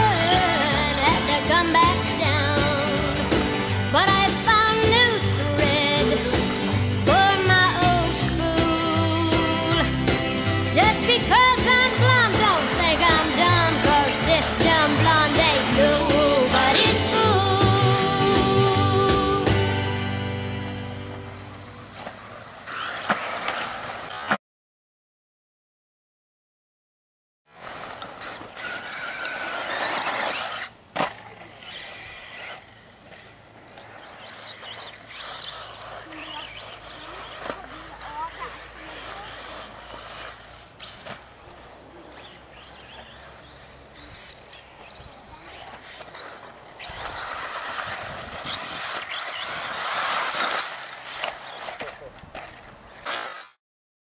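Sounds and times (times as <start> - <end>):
tyres on dirt: 0.0 - 24.4, 27.5 - 53.6
electric motor whine: 27.6 - 53.6
tyres hissing on dirt: 33.8 - 43.5.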